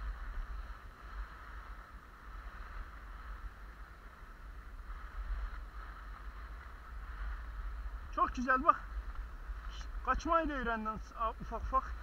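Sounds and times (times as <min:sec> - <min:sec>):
skis sliding on snow: 0:00.0 - 0:12.0
wind buffeting microphone: 0:00.0 - 0:12.0.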